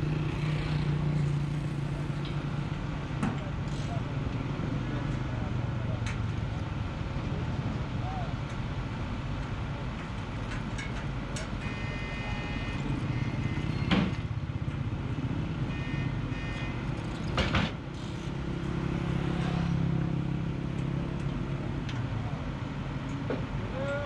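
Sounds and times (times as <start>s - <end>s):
drilling rig engine running: 11.3s - 14.2s.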